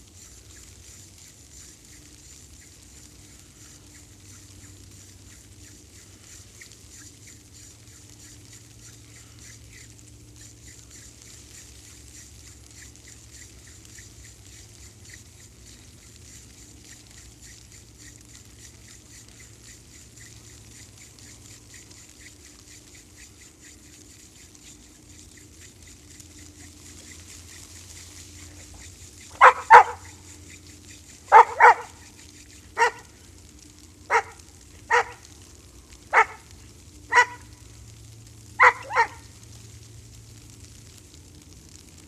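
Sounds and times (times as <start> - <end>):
dog barking: 29.4 - 30.1, 31.3 - 32.0, 32.8 - 33.1, 34.1 - 35.2, 36.1 - 36.4, 37.1 - 37.5, 38.6 - 39.3.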